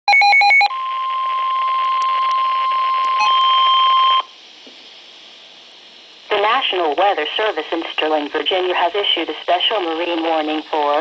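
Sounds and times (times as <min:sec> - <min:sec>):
faint hiss: 0:04.2 - 0:11.0.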